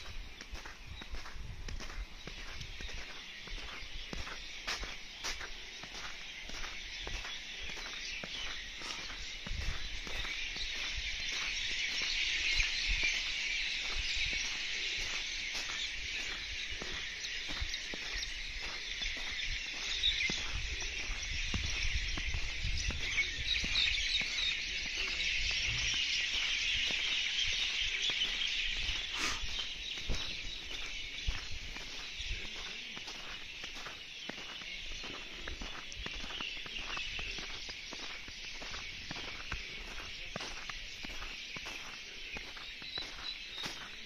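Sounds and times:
chirping: 0.0s - 44.0s
footsteps on snowy road: 0.0s - 44.0s
high-pitched hiss: 27.4s - 29.8s.

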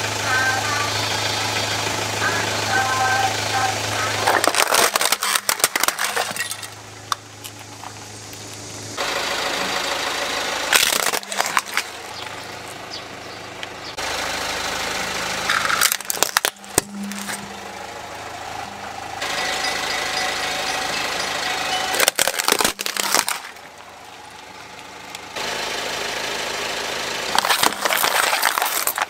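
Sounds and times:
car engine idling: 0.0s - 29.0s
plastic toys cracking under tyre: 4.2s - 8.6s, 10.7s - 12.8s, 15.5s - 17.4s, 21.9s - 25.3s, 27.3s - 29.0s.

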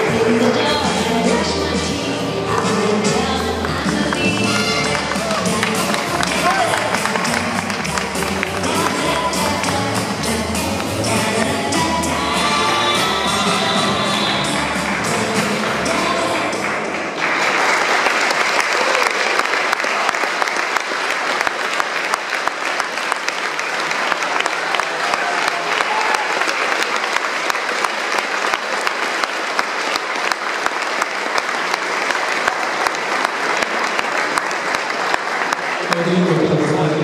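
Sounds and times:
dance music: 0.0s - 17.2s
audience applause: 3.6s - 11.0s, 12.2s - 37.0s.

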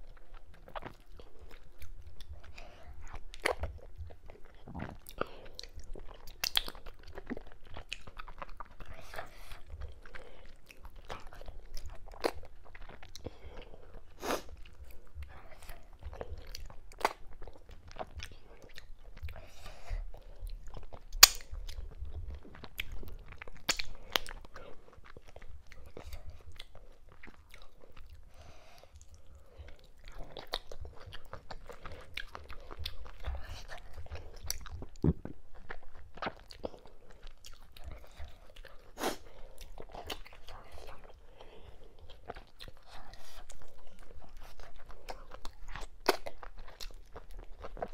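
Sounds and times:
chewing and mouth sounds: 0.0s - 47.9s.

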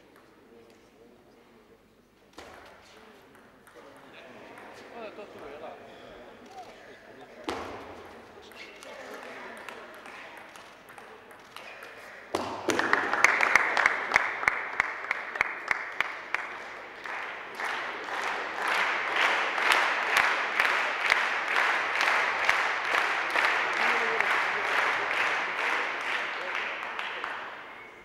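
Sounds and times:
spectators applauding: 8.1s - 28.0s.

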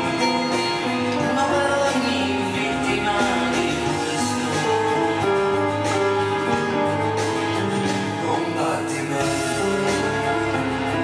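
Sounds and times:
electronic keyboard pop ballad: 0.0s - 11.0s.

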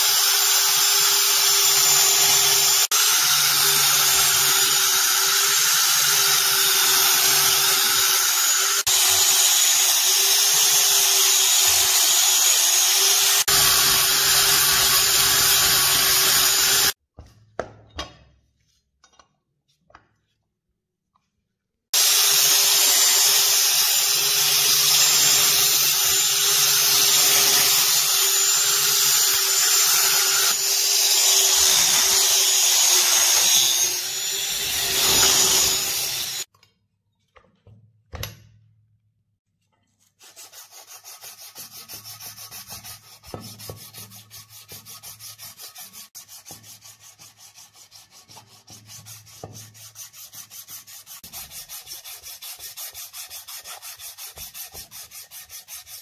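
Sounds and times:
grinder wheel whining: 0.0s - 17.0s, 22.0s - 36.5s.

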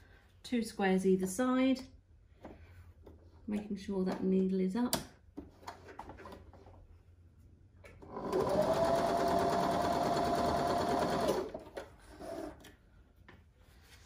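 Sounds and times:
electric sewing machine stitching: 8.0s - 12.6s.

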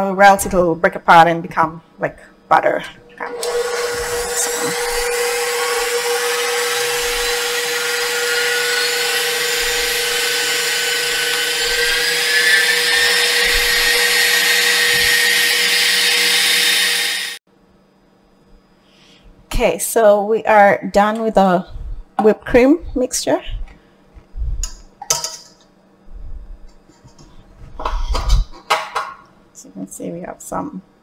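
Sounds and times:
stand mixer motor whine: 3.2s - 17.4s.

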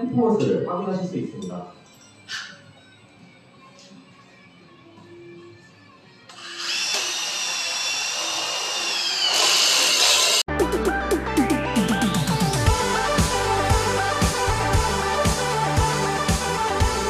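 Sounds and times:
cordless drill whining in wood: 6.3s - 10.5s
electronic music: 10.5s - 17.0s.

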